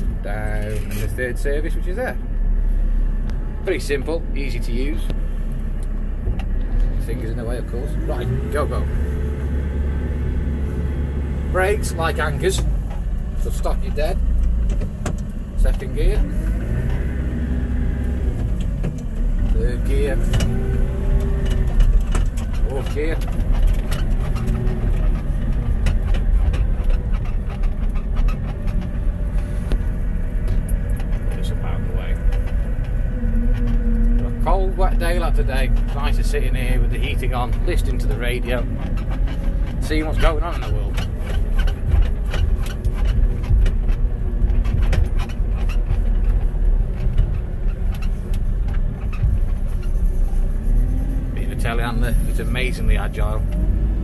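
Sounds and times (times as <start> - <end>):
diesel engine rumbling: 0.0 - 54.0
light clicks and rattles: 18.0 - 54.0.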